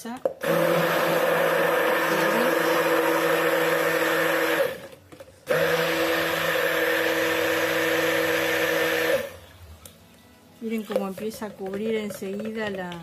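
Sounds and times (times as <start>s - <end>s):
stick blender running: 0.4s - 9.4s.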